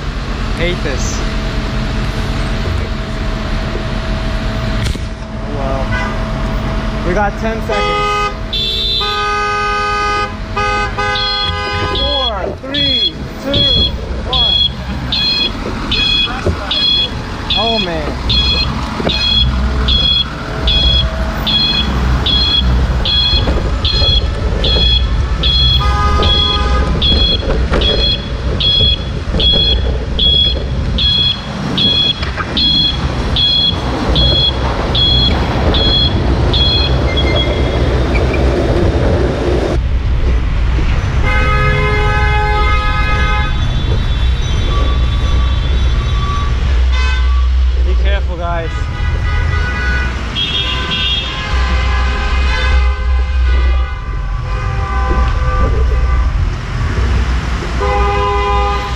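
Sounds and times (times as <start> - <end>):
low traffic rumble: 0.0 - 58.9
car horns honking: 2.0 - 39.1, 41.2 - 58.9
high electronic beeps: 12.0 - 38.3.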